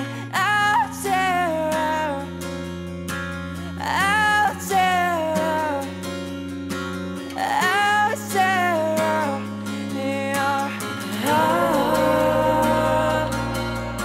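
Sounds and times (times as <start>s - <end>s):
guitar accompaniment: 0.0s - 14.0s
person singing long notes: 11.1s - 14.0s.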